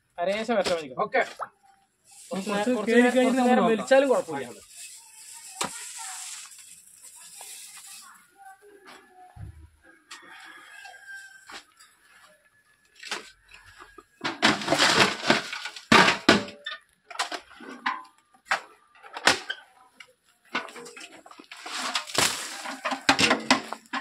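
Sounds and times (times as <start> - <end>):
knocks and clatters: 14.2 - 19.5.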